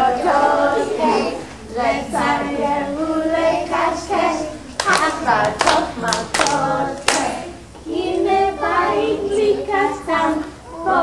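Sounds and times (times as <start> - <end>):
children singing: 0.0 - 11.0
sharp hand claps: 4.8 - 7.4.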